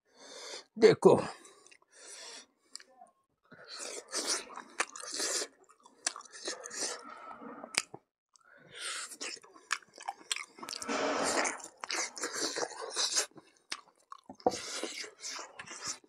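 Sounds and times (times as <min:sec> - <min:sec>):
person chewing meat off bone: 0:03.6 - 0:07.0, 0:08.9 - 0:16.0
teeth and mouth clicks: 0:03.7 - 0:07.0, 0:09.1 - 0:16.0.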